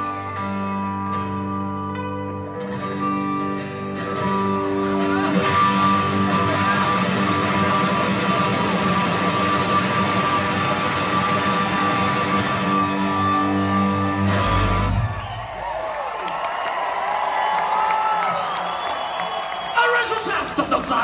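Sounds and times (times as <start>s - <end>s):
held guitar chords ringing: 0.0s - 15.2s
live punk band playing: 0.0s - 15.2s.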